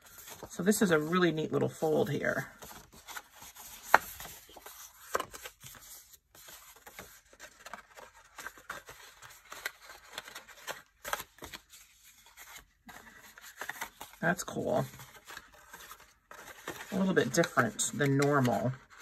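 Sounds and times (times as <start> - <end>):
paper rustling and sliding: 2.2 - 14.2.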